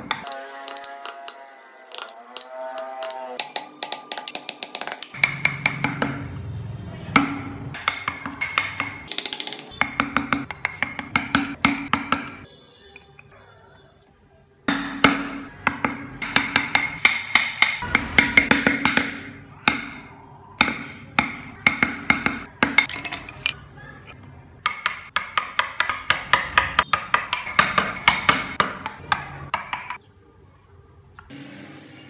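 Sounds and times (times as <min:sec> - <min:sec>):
mallet tapping chisel into wood: 0:00.0 - 0:06.2, 0:09.8 - 0:12.4, 0:14.7 - 0:20.0, 0:24.6 - 0:30.0.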